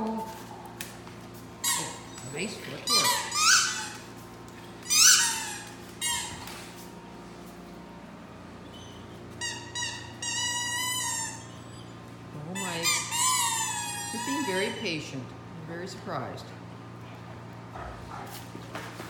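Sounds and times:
squeaky toy squeaking: 0:01.6 - 0:02.3, 0:02.9 - 0:04.0, 0:04.9 - 0:06.4, 0:09.4 - 0:11.8, 0:12.6 - 0:15.0.

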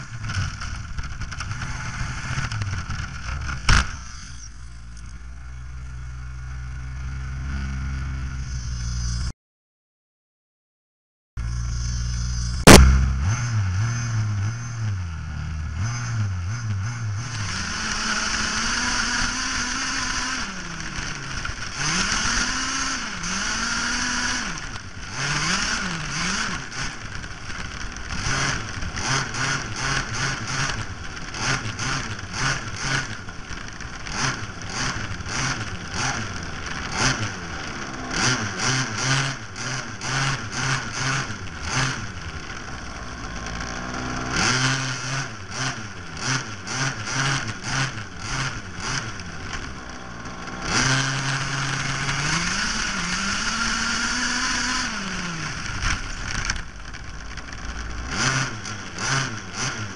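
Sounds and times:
sharp crack: 0:00.0 - 0:04.3, 0:12.5 - 0:13.2.

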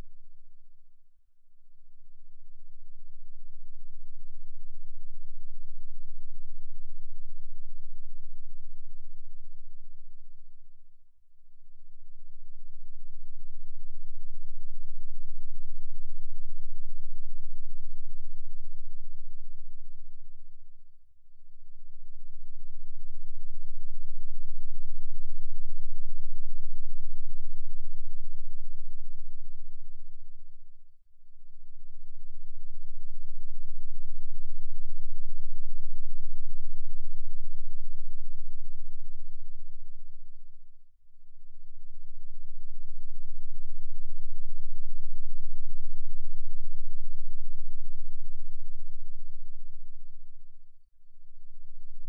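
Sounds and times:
deep low fluttering hum: 0:00.0 - 0:52.0
faint high-pitched whine: 0:00.0 - 0:52.0
pulsing synthesized bass drone: 0:21.4 - 0:52.0.

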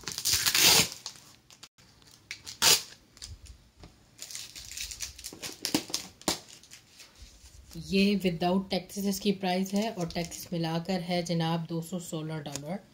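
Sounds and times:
paper and packaging rustling: 0:04.2 - 0:07.8, 0:09.6 - 0:10.6.

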